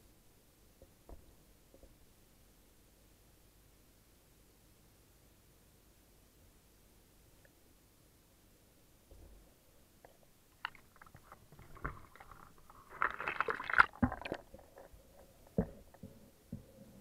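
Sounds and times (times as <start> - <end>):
water splashing and crackling: 10.6 - 15.0.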